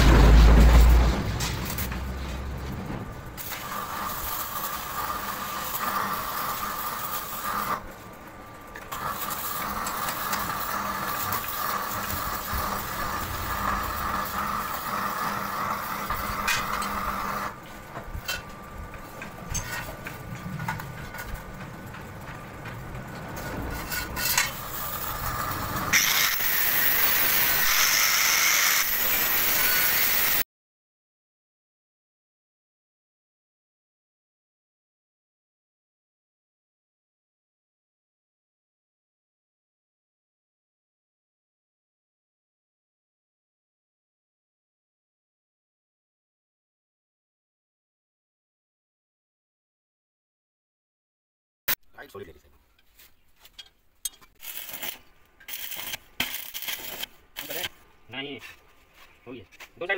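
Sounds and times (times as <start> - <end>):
angle grinder whining: 24.0 - 30.4.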